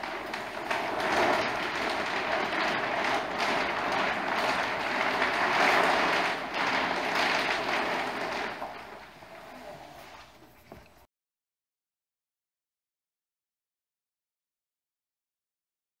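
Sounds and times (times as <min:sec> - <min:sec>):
sailcloth rustling: 0:00.0 - 0:11.1.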